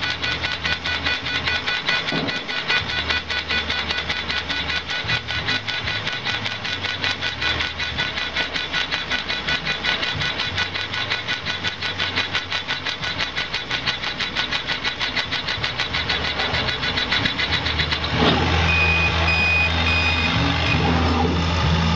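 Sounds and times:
laser engraver rhythmic whirring: 0.0s - 21.9s
short high beeps: 18.6s - 20.9s.

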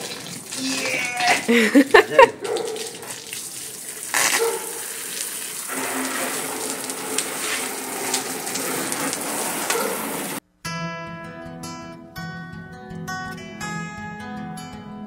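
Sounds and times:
hose spraying water on paving: 0.0s - 10.4s.

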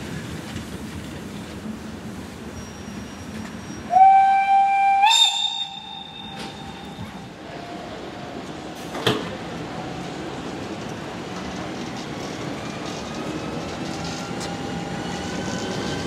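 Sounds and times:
low rail noise: 0.0s - 16.0s
train whistle blast: 3.9s - 7.3s.

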